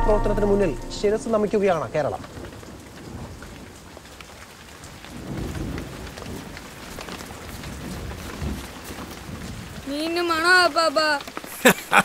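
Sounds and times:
low rumbles: 0.0 - 2.6
steady rain falling: 0.0 - 12.0.

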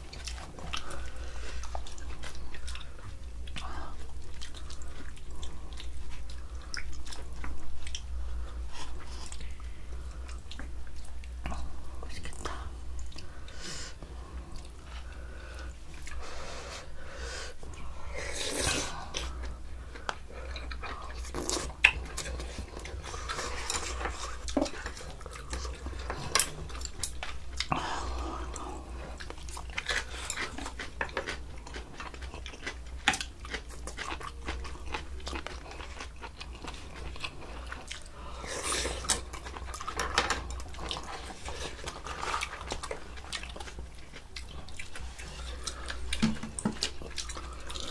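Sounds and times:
chewing and biting: 18.4 - 47.9.

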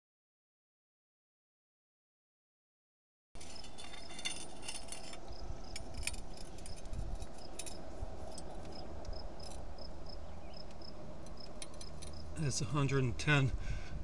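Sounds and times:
hand tools clinking: 3.4 - 9.7, 10.6 - 12.4
insect chirping: 3.4 - 12.6.

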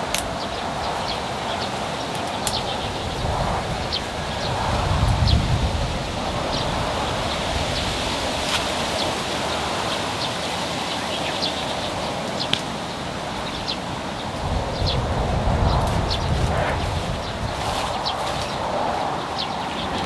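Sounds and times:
leaves and branches rustling: 0.0 - 20.0.

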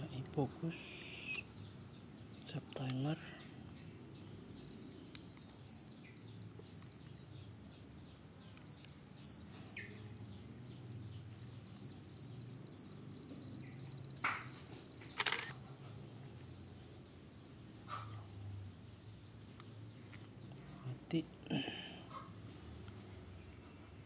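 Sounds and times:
camera self-timer beeping: 4.6 - 15.5
camera shutter click: 14.2 - 15.6.

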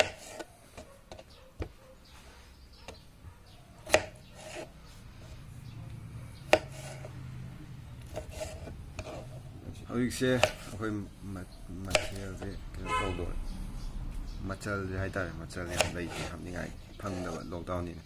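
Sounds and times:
knife slicing tomato: 0.0 - 1.8, 3.8 - 5.4, 6.3 - 7.2, 8.0 - 9.5, 10.1 - 10.9, 11.8 - 12.6, 15.5 - 17.5.

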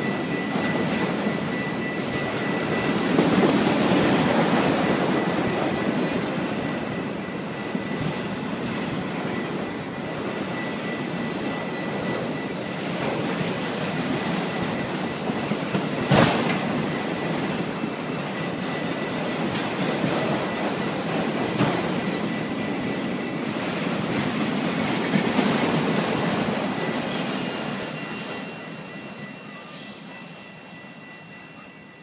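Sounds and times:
high wheel squeal: 0.0 - 17.6, 26.3 - 32.0
train wheels rumbling on rail: 0.0 - 32.0.

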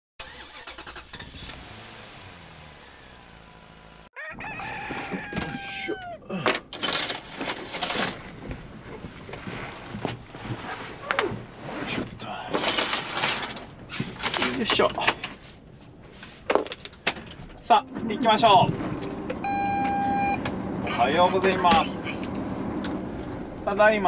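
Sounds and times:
rooster crowing: 4.2 - 6.3
rustling and knocking in truck cab: 6.4 - 12.2.

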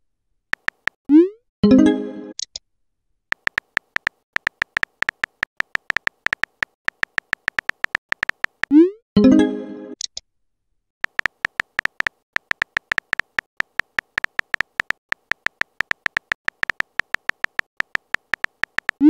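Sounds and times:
phone keyboard typing clicks: 0.6 - 1.0, 3.3 - 8.8, 11.0 - 19.0.

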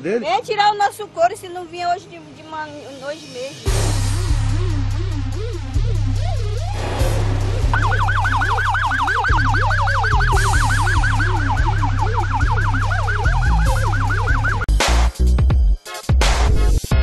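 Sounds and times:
electronic music with heavy bass: 3.7 - 17.0
police siren yelping: 7.7 - 14.7.

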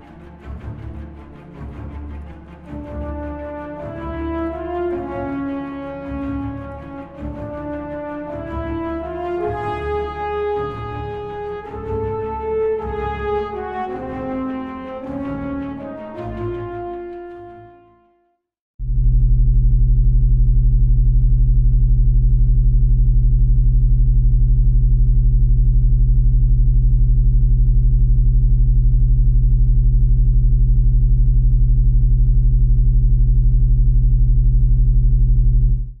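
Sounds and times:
low synthesizer drone with tremolo: 18.8 - 36.0.

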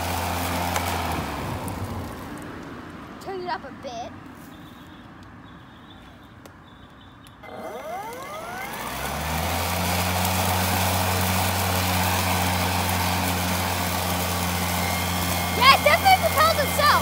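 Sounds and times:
electric lawn mower motor whine: 0.0 - 2.7, 7.4 - 17.0.

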